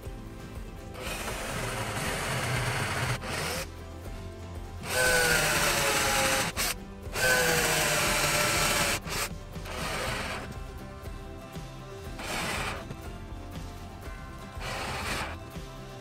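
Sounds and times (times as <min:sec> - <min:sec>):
drill boring into wood: 0:01.0 - 0:03.8, 0:04.8 - 0:10.7, 0:12.1 - 0:13.0, 0:14.5 - 0:15.4.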